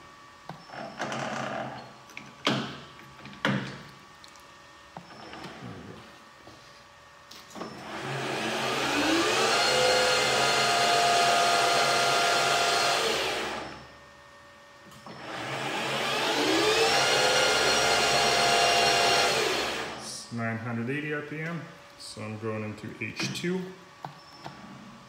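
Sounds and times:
lathe motor whine: 7.6 - 14.0, 15.1 - 20.1.

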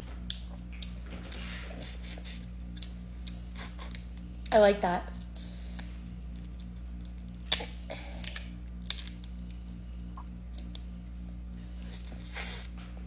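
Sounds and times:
crab shells cracking: 5.7 - 11.1.

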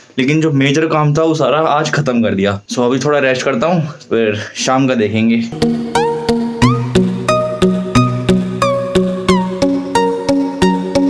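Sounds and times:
background music with steady beat: 5.5 - 11.0.

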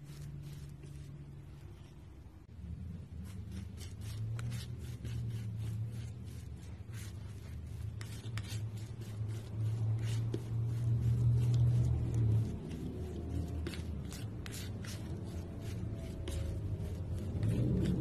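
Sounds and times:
palette knife scraping paint: 0.0 - 2.1, 3.0 - 18.0.

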